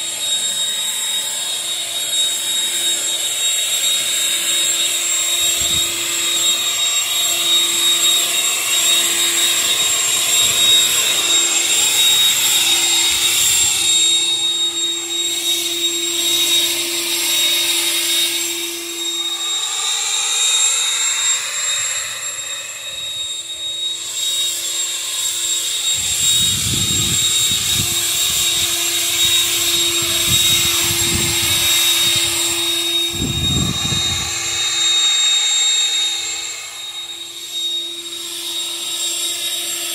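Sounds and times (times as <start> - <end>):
electric leaf blower whining: 0.0 - 39.9
low rumbling gusts: 26.0 - 28.6, 29.9 - 34.6.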